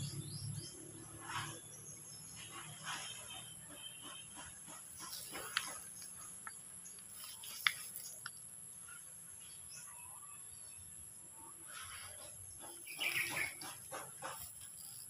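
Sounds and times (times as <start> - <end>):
goat tearing and chewing leaves: 4.7 - 8.3.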